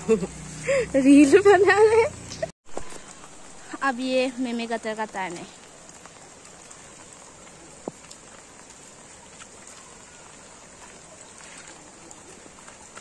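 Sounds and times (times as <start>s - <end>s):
rain falling: 0.0s - 13.0s.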